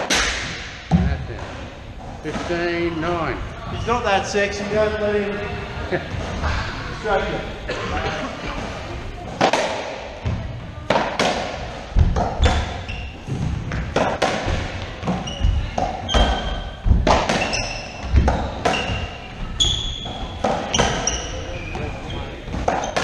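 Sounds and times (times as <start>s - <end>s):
racquetball hits echoing: 0.0s - 2.8s, 9.3s - 23.0s
sneakers squeaking on wooden floor: 11.9s - 23.0s.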